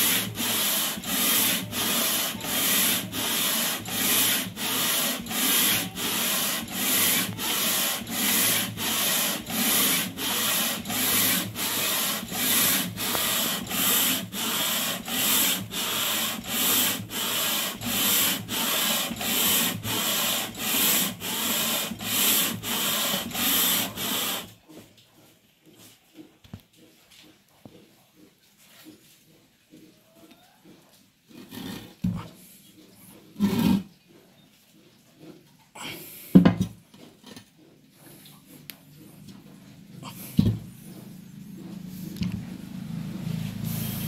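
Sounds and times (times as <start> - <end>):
metal rubbing on sandpaper: 0.0 - 24.6, 43.3 - 44.0.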